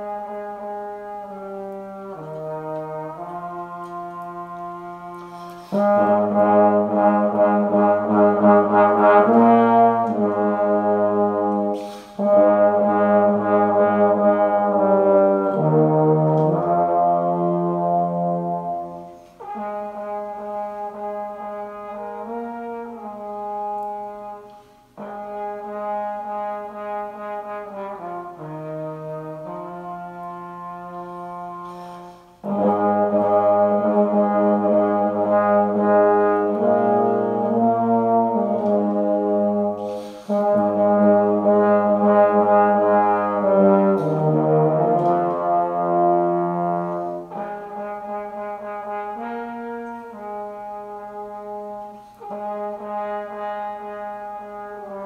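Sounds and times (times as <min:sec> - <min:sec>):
trombone ensemble chorale: 0:00.0 - 0:55.0
player breathing: 0:05.2 - 0:05.8, 0:11.8 - 0:12.2, 0:39.8 - 0:40.4.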